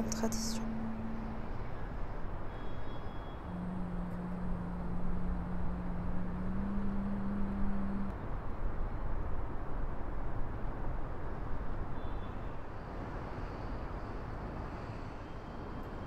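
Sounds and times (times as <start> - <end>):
low steady hum: 0.0 - 9.5
outdoor background rumble and hiss: 0.0 - 16.0.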